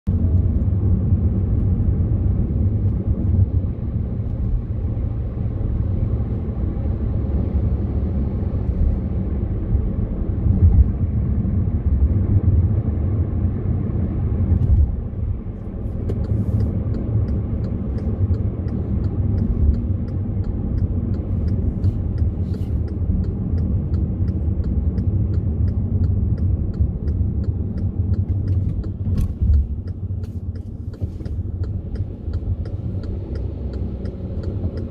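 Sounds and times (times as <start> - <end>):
car tyres and engine rumble: 0.0 - 34.9
light ticking: 16.1 - 34.9.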